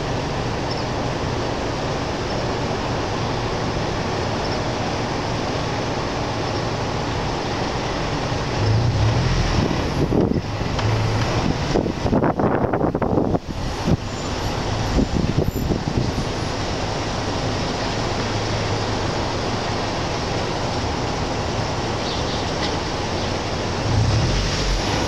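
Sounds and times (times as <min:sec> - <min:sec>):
car road and wind noise: 0:00.0 - 0:25.0
low rumble: 0:23.6 - 0:25.0.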